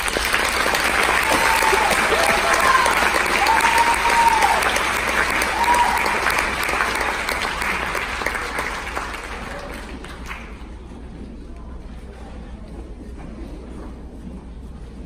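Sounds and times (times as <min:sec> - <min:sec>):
cheers: 0:00.0 - 0:08.4
audience applauding: 0:00.0 - 0:10.7.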